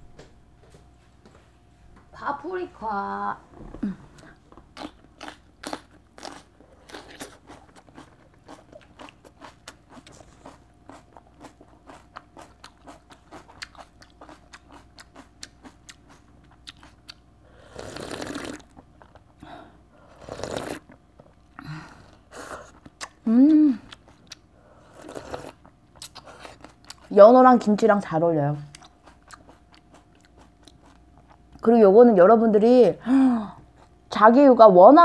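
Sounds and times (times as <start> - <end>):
crunchy chewing of raw pepper: 4.4 - 19.4, 20.1 - 21.6, 22.3 - 23.2, 23.9 - 27.2, 28.6 - 31.6.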